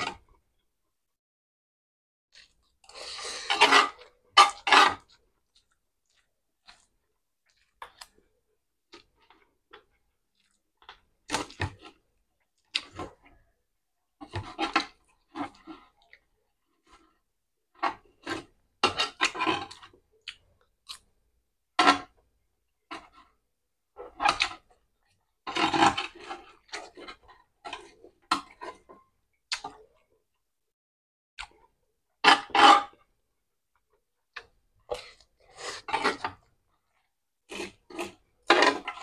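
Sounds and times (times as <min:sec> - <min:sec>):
person chewing food: 0:02.3 - 0:13.6, 0:14.2 - 0:21.2, 0:24.1 - 0:30.4, 0:33.7 - 0:39.0.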